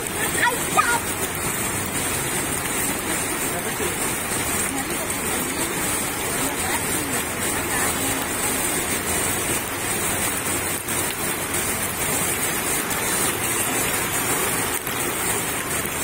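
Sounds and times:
floodwater rushing: 0.0s - 16.0s
heavy rain: 0.0s - 16.0s.

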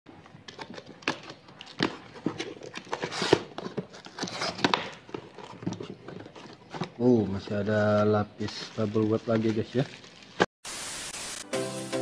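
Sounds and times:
cardboard and tape tearing: 0.5s - 7.1s.

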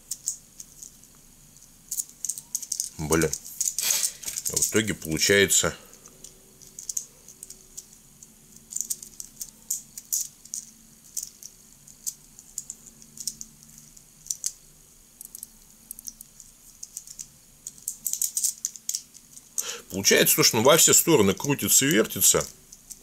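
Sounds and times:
plastic fidget cube clicking: 1.9s - 4.7s, 6.2s - 19.5s.

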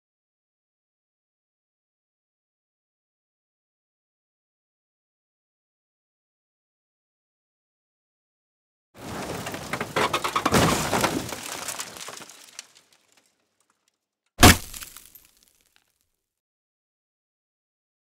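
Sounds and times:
cracking and breaking: 9.0s - 13.8s, 14.4s - 15.8s.

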